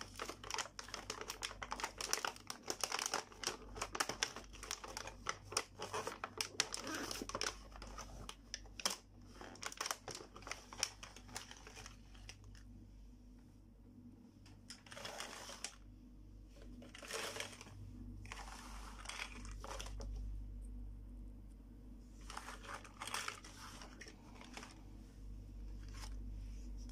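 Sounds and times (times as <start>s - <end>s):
plastic packaging crinkling: 0.0s - 12.7s, 14.6s - 15.8s, 16.6s - 20.1s, 22.2s - 25.0s, 25.7s - 26.3s.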